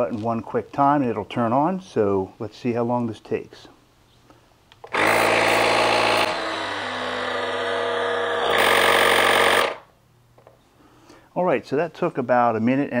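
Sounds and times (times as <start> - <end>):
tire inflator compressor running: 4.8 - 9.9.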